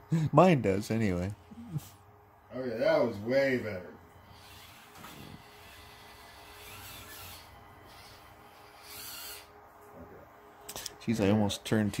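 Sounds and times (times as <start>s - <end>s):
small electric motor whirring: 4.2s - 9.7s, 10.6s - 12.0s.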